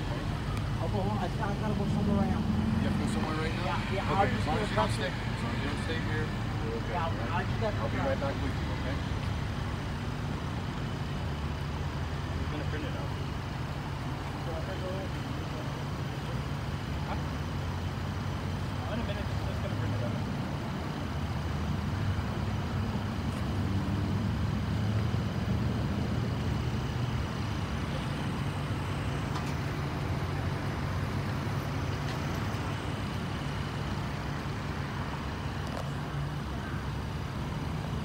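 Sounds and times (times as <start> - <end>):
idling vehicle engines: 0.0 - 38.0
road traffic: 0.0 - 38.0.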